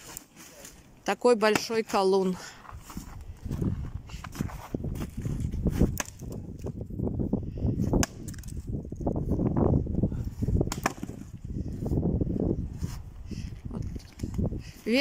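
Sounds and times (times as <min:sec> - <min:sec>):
wind rumbling on microphone: 0:02.6 - 0:15.0
maul splitting logs: 0:04.2 - 0:06.8, 0:07.8 - 0:08.8, 0:10.6 - 0:11.4.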